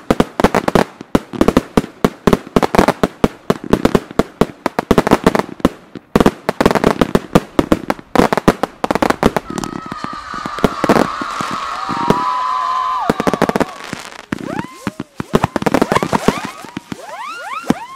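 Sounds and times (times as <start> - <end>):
fireworks cracking reports: 5.4 - 17.9.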